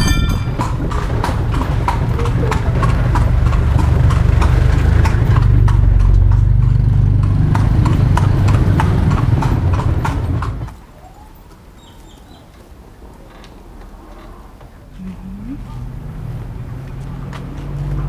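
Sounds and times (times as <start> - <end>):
horse hooves clip-clopping: 0.0 - 15.2, 16.3 - 18.0.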